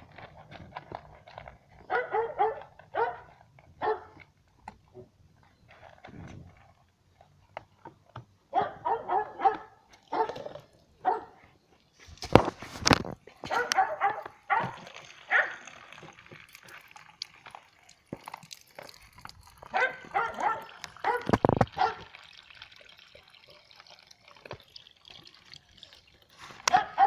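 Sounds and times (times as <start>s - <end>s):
dog barking and yipping: 1.9s - 4.2s, 8.5s - 11.4s, 13.4s - 15.7s, 19.7s - 22.1s, 26.6s - 27.0s.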